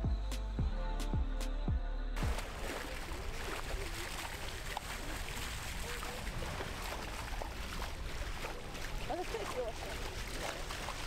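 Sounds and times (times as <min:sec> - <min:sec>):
water rushing along boat hull: 0:02.2 - 0:11.0.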